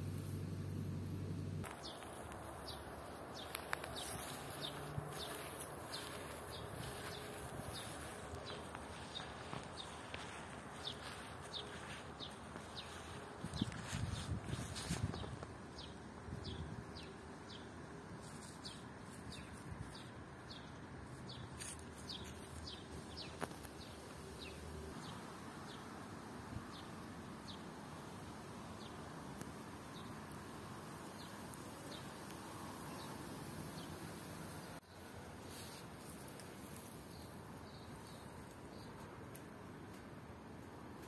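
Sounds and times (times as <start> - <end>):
steady outdoor hiss: 0.0 - 41.0
small bird chirping: 1.6 - 17.7.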